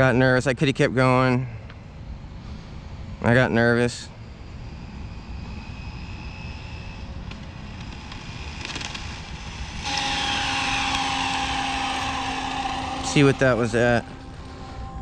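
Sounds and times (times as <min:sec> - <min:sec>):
thin high whine: 0:00.0 - 0:15.0
rc car electric motor whining: 0:03.9 - 0:15.0.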